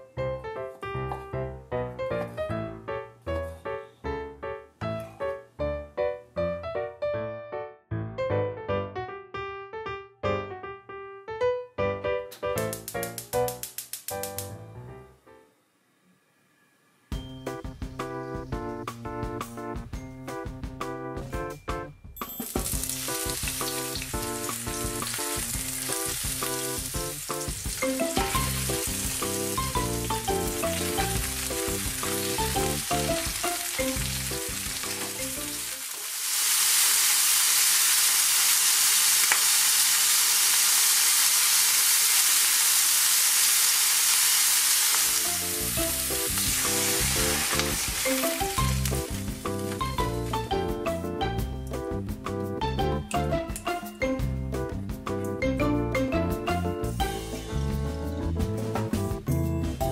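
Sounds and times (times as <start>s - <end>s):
piano music: 0.0s - 15.5s, 17.1s - 36.0s, 45.0s - 59.9s
food sizzling in hot oil: 22.4s - 50.5s.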